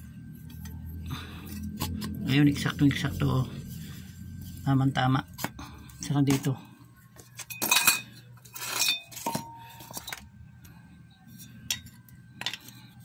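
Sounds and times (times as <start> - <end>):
metal motor parts clinking: 7.2 - 10.3.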